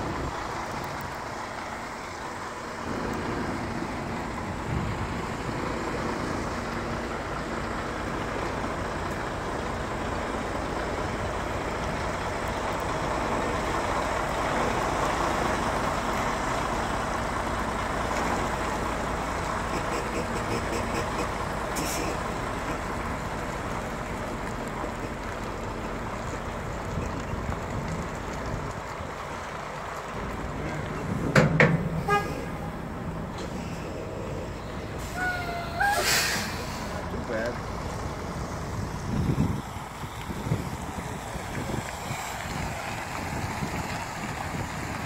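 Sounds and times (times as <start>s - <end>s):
truck engine running: 0.0s - 45.0s
short sharp hiss: 35.8s - 36.9s.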